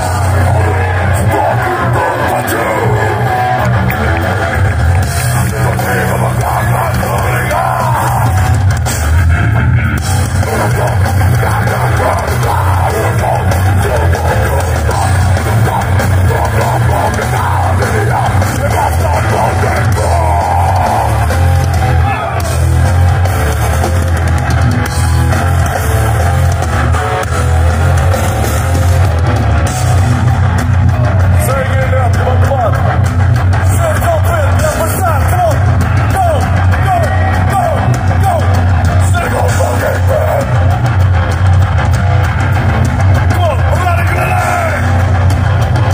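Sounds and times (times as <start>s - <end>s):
bass guitar: 0.0s - 45.9s
distorted electric guitars: 0.0s - 45.9s
drum kit: 0.0s - 45.9s
person singing into microphone: 5.4s - 8.4s, 10.4s - 21.3s.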